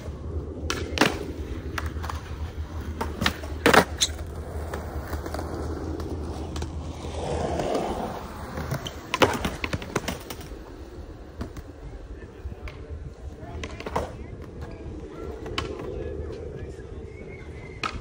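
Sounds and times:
skateboard clacks and impacts: 0.0 - 10.6
skateboard wheels rolling on concrete: 0.0 - 18.0.

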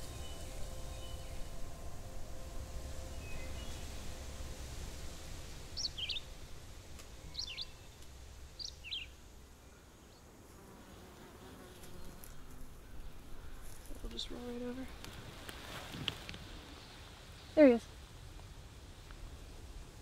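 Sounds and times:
bird chirping: 0.0 - 4.2, 5.7 - 6.4, 7.1 - 10.2
insect buzzing: 10.2 - 15.8.

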